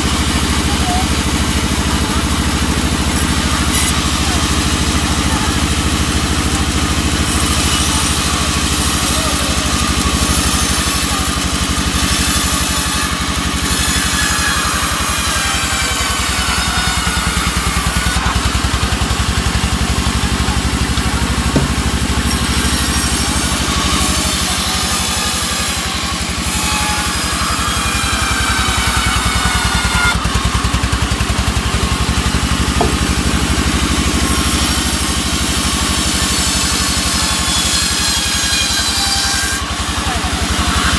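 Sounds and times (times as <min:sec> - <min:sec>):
band saw drive running: 0:00.0 - 0:40.9
saw blade hissing in wood: 0:07.3 - 0:30.2.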